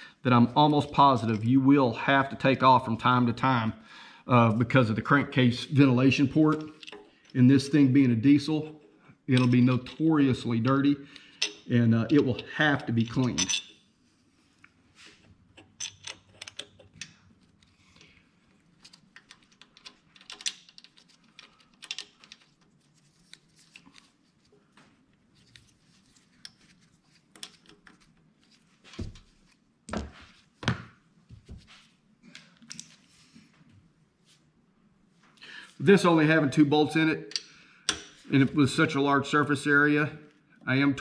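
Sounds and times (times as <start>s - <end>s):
small metal parts and tools clicking: 6.6s - 7.4s, 11.1s - 13.8s, 15.5s - 18.2s, 18.8s - 24.0s.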